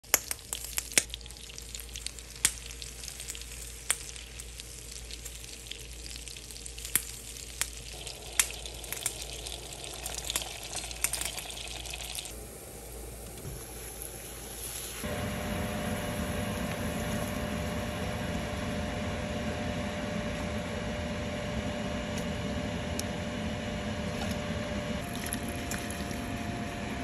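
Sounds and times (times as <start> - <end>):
sharp pops and crackles: 0.0 - 1.2, 1.8 - 9.4
butter sizzling in a pan: 0.1 - 17.8.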